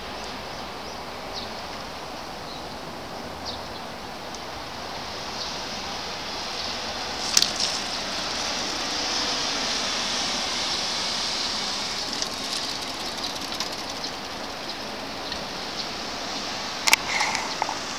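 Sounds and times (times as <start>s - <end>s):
high outdoor hiss: 0.0s - 17.9s
faint ticks: 12.1s - 15.4s.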